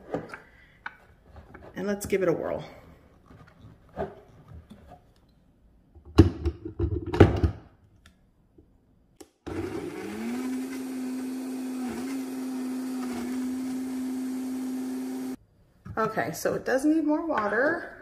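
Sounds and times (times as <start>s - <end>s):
blender motor running: 9.5s - 15.4s.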